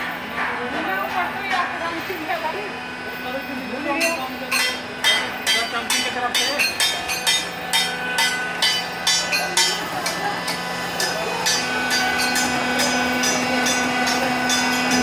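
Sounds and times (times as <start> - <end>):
hydraulic press motor hum: 7.0 - 15.0.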